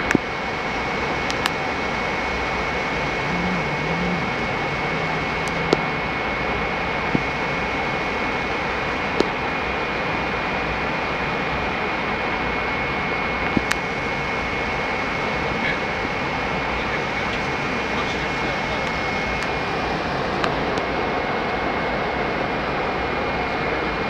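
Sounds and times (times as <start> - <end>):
airflow and jet engine noise: 0.0 - 24.0
thin high whine: 0.8 - 9.2.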